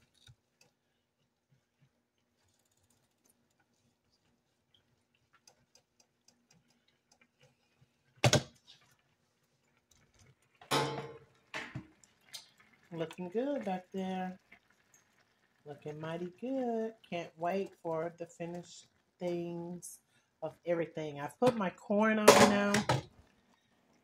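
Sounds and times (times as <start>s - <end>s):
faint ticks and light clicks: 0.0s - 7.9s.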